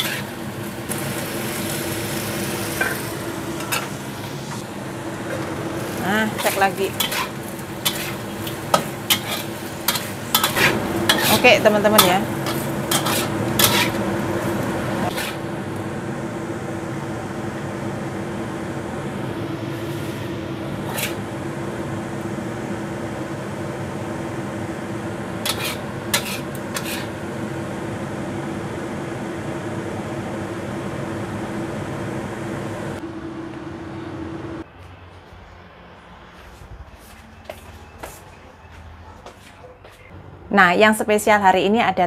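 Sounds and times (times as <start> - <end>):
metal spatula scraping a wok: 0.0 - 0.4, 5.3 - 15.5, 20.8 - 21.2, 25.4 - 27.2
kitchen fan humming: 0.0 - 34.7.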